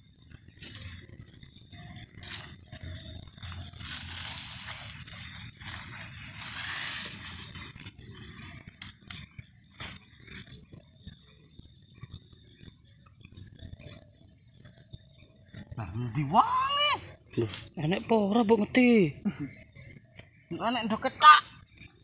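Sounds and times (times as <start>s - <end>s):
plants rustling against phone: 0.4s - 10.6s.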